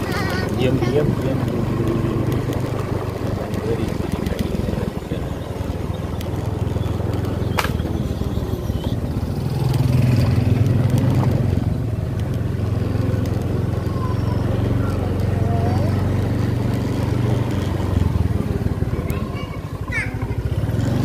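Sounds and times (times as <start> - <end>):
motorcycle engine running: 0.0 - 21.0
sharp click: 7.6 - 7.9.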